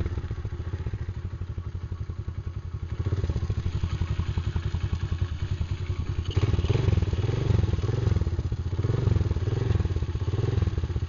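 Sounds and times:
small motorbike engine revving: 0:02.9 - 0:11.0.

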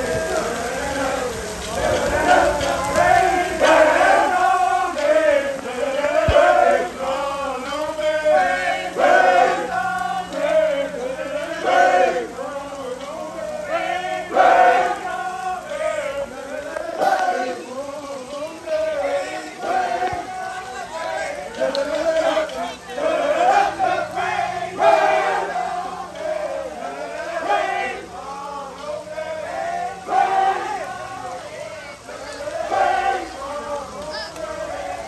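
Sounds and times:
marching band members chanting: 0:00.0 - 0:35.0.

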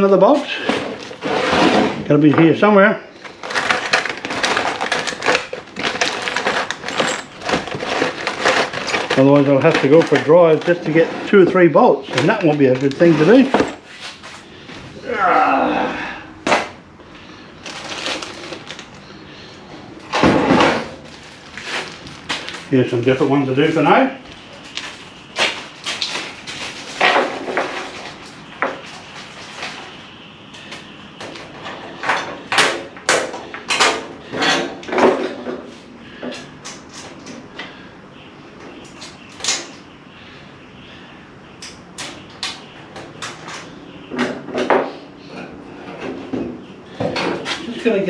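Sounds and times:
scraping rustle: 0:00.3 - 0:02.2, 0:03.2 - 0:14.9, 0:20.2 - 0:30.0
metal tools scraping on workbench: 0:00.5 - 0:02.1, 0:06.3 - 0:14.3
metal bolts rattling and clinking: 0:03.4 - 0:11.0.

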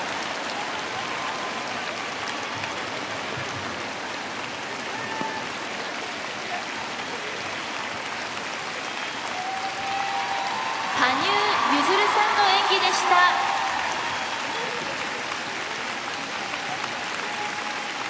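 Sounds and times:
large crowd applauding: 0:00.0 - 0:18.0.

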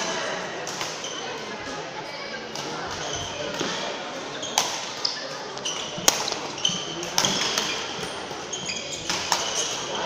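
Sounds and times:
shoes squeaking on court floor: 0:02.9 - 0:10.0
racket hitting shuttlecock: 0:05.9 - 0:07.8.

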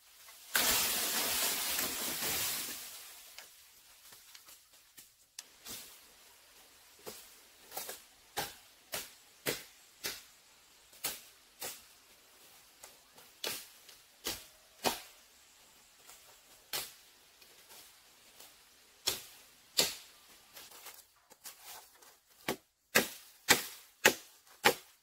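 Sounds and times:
blade chopping bamboo: 0:07.0 - 0:10.3, 0:13.4 - 0:15.2, 0:19.0 - 0:20.1, 0:22.3 - 0:25.0.

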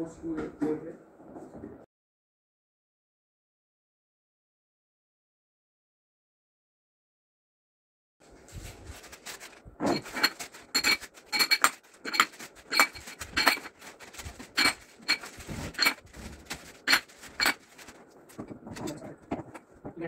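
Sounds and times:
metal rods clinking: 0:09.2 - 0:18.0.

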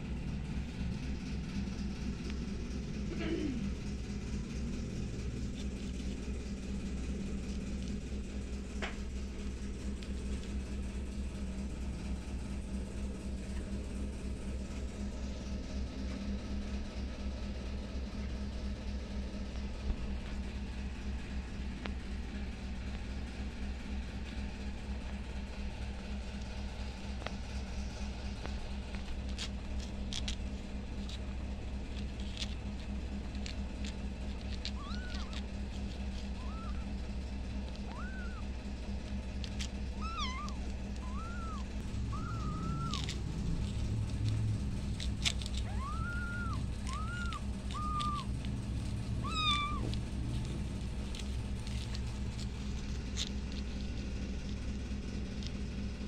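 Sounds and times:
steady low hum: 0:00.0 - 0:56.0
kittens mewing: 0:02.9 - 0:08.7, 0:31.0 - 0:54.6.

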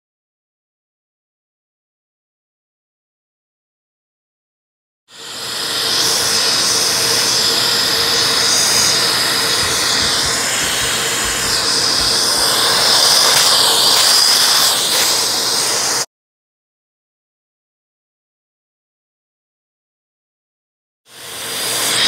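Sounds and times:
dust extractor hissing with whine: 0:05.1 - 0:16.1, 0:21.1 - 0:22.0.

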